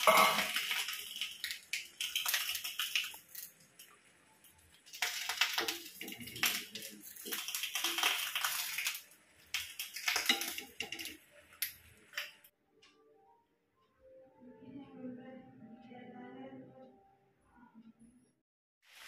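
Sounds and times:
leaf wrapper crinkling: 0.0s - 3.8s, 4.8s - 12.4s.

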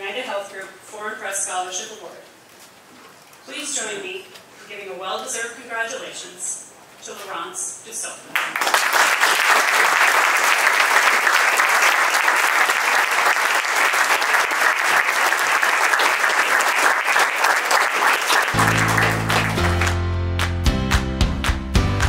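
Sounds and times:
audience applauding: 8.3s - 22.0s
music: 18.5s - 22.0s.

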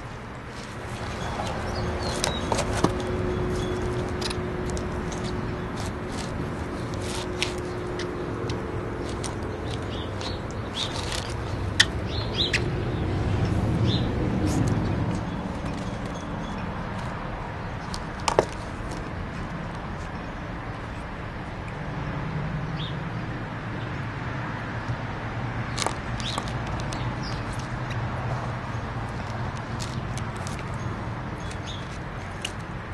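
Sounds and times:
outdoor background hum: 0.0s - 32.9s
puppy chewing clicks and taps: 6.8s - 12.7s, 17.8s - 19.8s, 25.7s - 28.4s.

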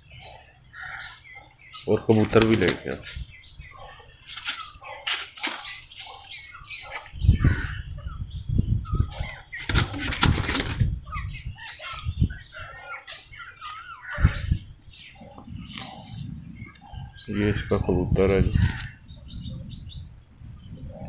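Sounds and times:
chickens clucking: 0.0s - 20.0s
pigeon wings flapping: 9.7s - 10.9s.

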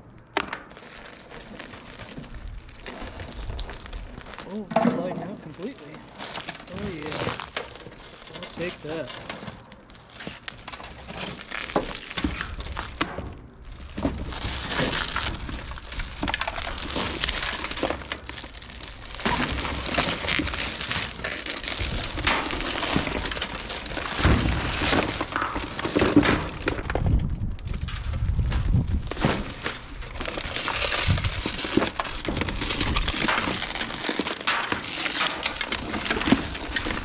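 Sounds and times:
shattered glass crackling and crunching: 0.6s - 37.0s.

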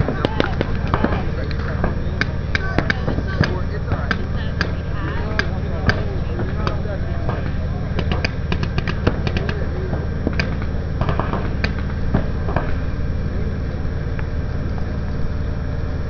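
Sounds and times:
steady low rumble: 0.0s - 16.0s
paintball markers firing pops: 5.4s - 9.6s, 10.2s - 12.8s.

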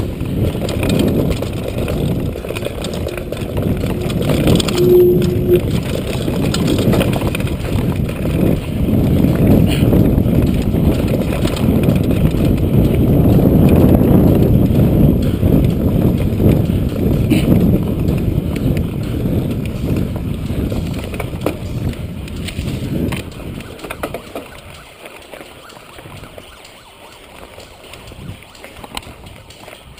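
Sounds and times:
bike knocks and rattles: 0.0s - 4.6s, 6.0s - 25.4s
wind rushing on microphone: 0.0s - 24.9s, 27.9s - 29.9s.

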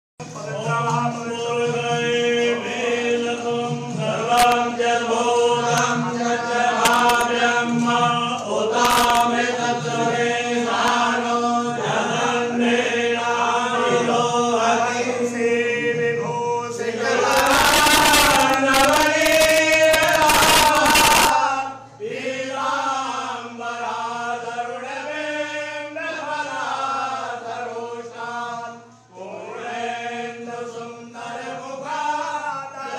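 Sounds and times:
male voices chanting: 0.3s - 32.9s
loud noisy sound: 8.8s - 9.3s, 17.3s - 21.4s.

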